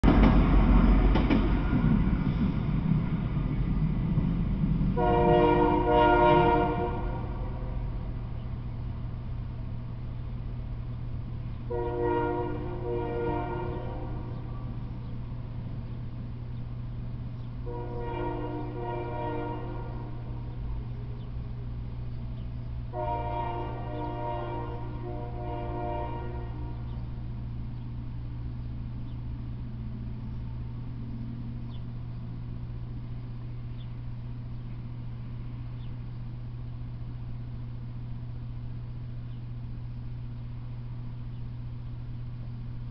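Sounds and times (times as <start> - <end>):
low rumble: 0.0 - 42.9
steady low hum: 0.0 - 42.9
locomotive air horn: 5.0 - 8.2, 11.7 - 14.8, 17.6 - 20.6, 22.9 - 27.1.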